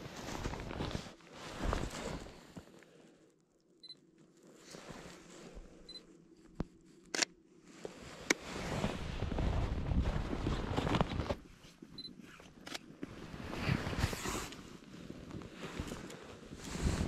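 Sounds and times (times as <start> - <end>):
camera autofocus beep: 12.0 - 12.8.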